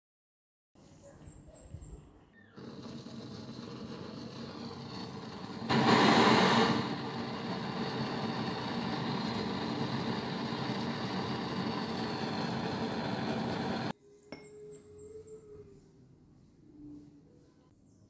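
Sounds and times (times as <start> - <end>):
torch flame burning: 2.6 - 13.9.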